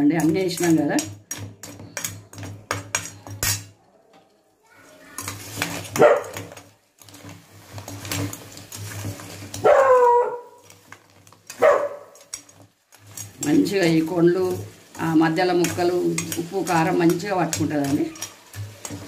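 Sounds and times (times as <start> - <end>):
spoon clattering against pot: 0.0 - 3.8, 5.0 - 19.0
dog barking: 6.0 - 6.4, 9.6 - 10.6, 11.6 - 12.2.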